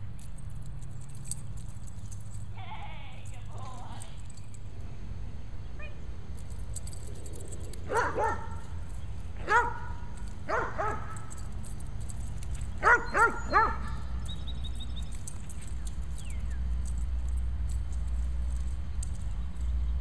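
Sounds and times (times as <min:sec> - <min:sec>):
dog barking: 0:07.9 - 0:08.6, 0:09.4 - 0:11.2, 0:12.8 - 0:14.0.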